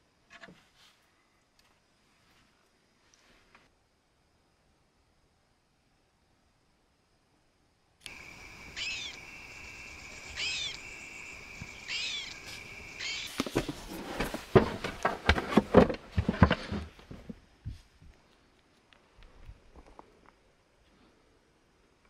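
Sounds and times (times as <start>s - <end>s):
animal high calls: 8.1s - 13.4s
loud rustles and knocks: 13.3s - 17.4s.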